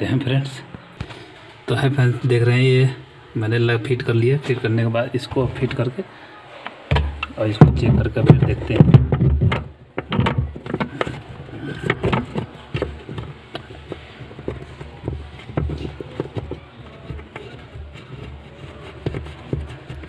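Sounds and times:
plastic clicks and knocks: 6.9 - 20.0.

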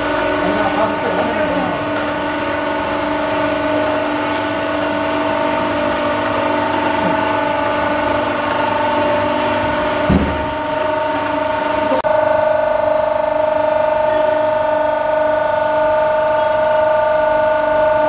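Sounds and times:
pan mixer humming and whining: 0.0 - 18.0
low thump: 10.1 - 10.5.

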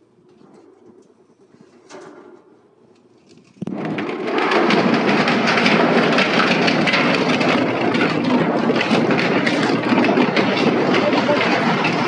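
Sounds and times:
industrial shredder grinding: 3.4 - 12.0.

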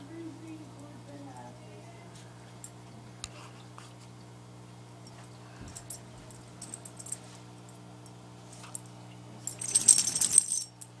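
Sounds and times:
collar tags jingling: 9.5 - 10.8.

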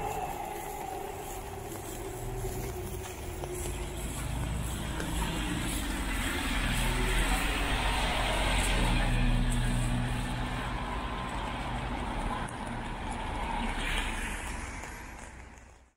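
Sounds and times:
vehicle engine passing: 0.0 - 14.6
tyres hissing on wet road: 0.1 - 15.4.

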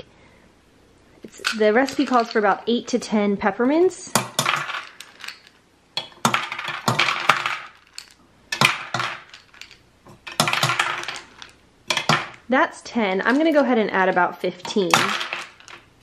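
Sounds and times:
candies clattering into plastic bowl: 1.3 - 2.6, 4.1 - 12.4, 13.2 - 13.6, 14.6 - 15.9.

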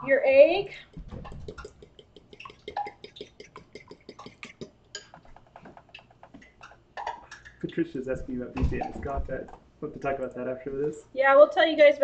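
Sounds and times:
fork beating egg in bowl: 0.8 - 7.6
fork clinking on bowl: 2.4 - 5.3.

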